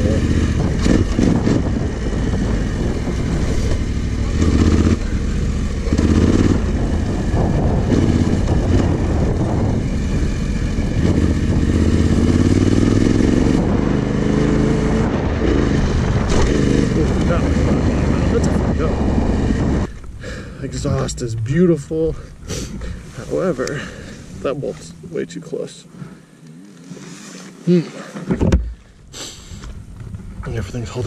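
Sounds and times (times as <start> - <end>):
wind noise on microphone: 0.0 - 23.3
motorcycle engine revving: 0.0 - 24.2.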